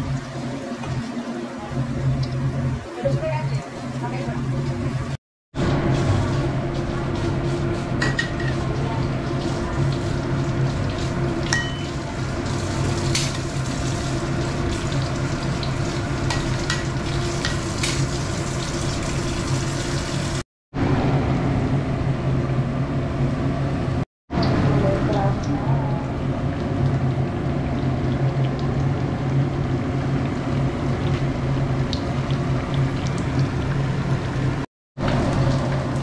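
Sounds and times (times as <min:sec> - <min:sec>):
batter sizzling in hot oil: 0:00.0 - 0:20.4.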